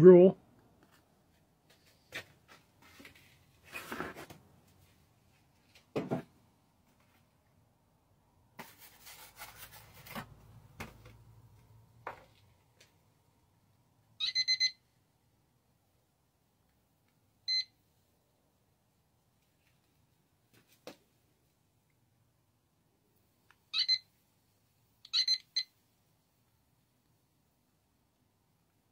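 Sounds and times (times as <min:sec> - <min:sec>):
scraping handling sounds: 0:01.7 - 0:04.4
kitchen timer beeps: 0:14.2 - 0:14.8, 0:17.5 - 0:17.7.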